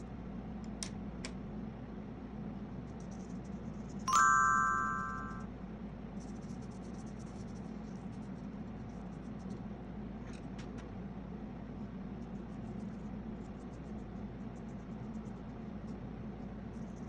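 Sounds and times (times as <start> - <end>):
steady low hum: 0.0 - 17.0
bell-like chime: 4.1 - 5.4
paintbrush scratching on paper: 6.2 - 9.6, 12.2 - 17.0.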